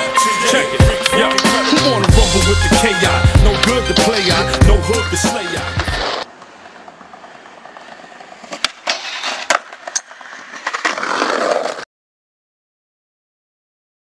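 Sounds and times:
hip-hop music: 0.0 - 6.2
skateboard rolling on concrete: 0.0 - 11.9
skateboard clacks: 5.8 - 11.8.

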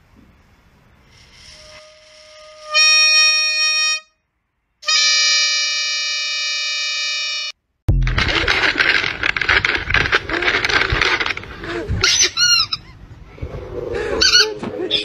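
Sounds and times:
plastic horn honking: 4.8 - 7.5.

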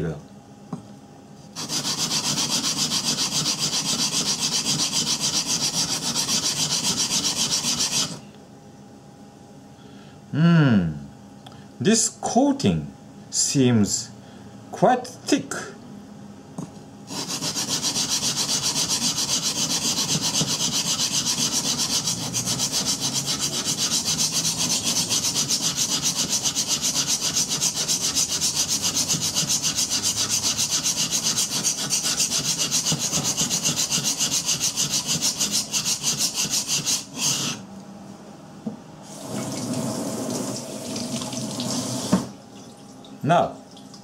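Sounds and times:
knife rasping on whetstone: 1.6 - 8.2, 17.1 - 37.6
tap water running into sink: 39.3 - 42.8.

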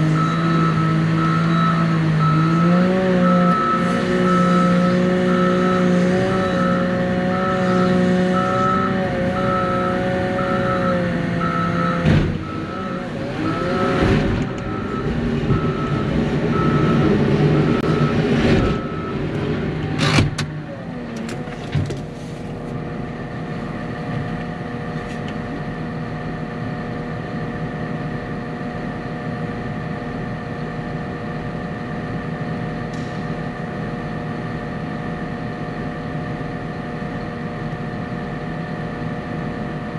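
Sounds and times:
vehicle engine running: 0.0 - 39.9
repeating beep: 8.3 - 13.0.

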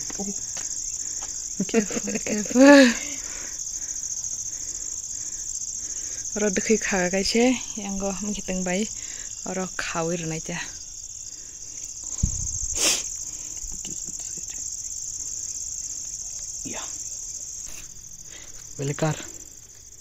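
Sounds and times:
crickets trilling: 0.0 - 20.0
thump: 12.2 - 12.6.

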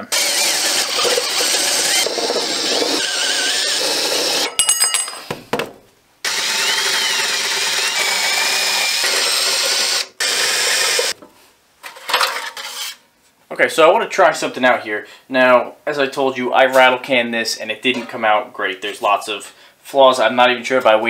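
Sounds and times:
drill boring through sheet metal: 0.0 - 4.5, 6.3 - 11.2.

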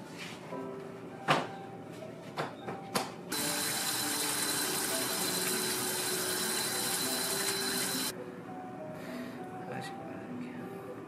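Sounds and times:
tap water running into sink: 3.3 - 8.1.

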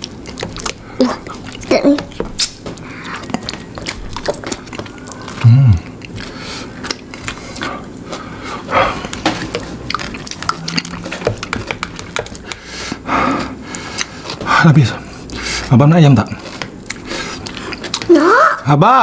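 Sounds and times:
wet mouth clicks: 0.0 - 7.7, 9.1 - 12.7
chewing and lip-smacking: 0.0 - 13.0, 13.6 - 18.2
low hum falling in pitch: 5.0 - 5.9, 9.8 - 12.2.

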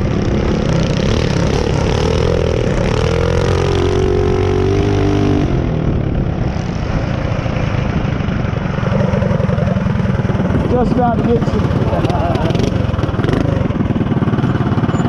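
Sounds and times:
mini bike engine revving: 0.0 - 5.6, 8.8 - 15.0.

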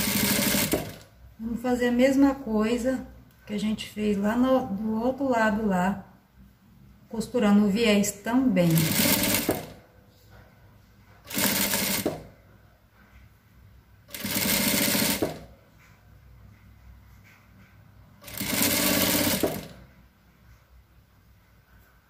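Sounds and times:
sewing machine stitching: 0.0 - 1.1, 8.6 - 9.8, 11.2 - 12.3, 14.1 - 15.5, 18.2 - 19.9.

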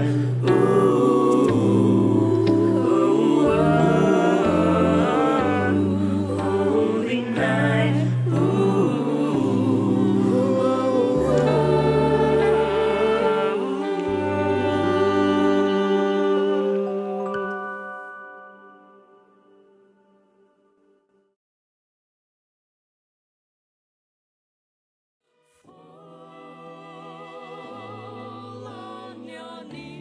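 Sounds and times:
vocal ensemble singing in harmony: 0.0 - 18.7, 25.6 - 30.0.

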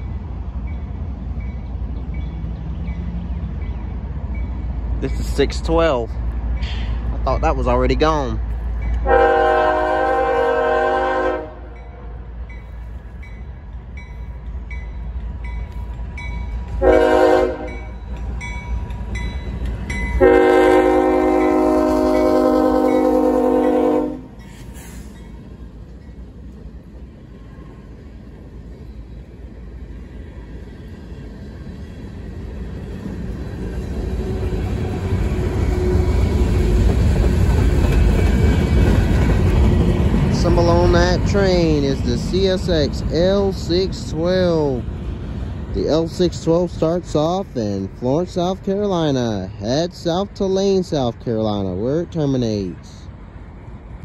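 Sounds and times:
train rumbling on rails: 0.0 - 54.0
locomotive air horn blasts: 9.0 - 12.1, 16.8 - 17.9, 20.2 - 24.4.

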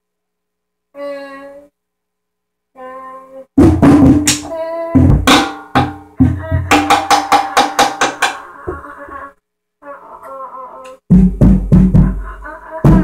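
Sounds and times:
drum kit playing: 3.6 - 8.4, 11.1 - 13.0.

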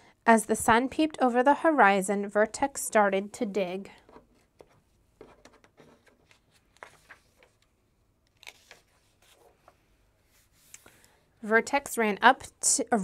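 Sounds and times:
paper page turning: 5.7 - 7.7, 8.3 - 9.8.

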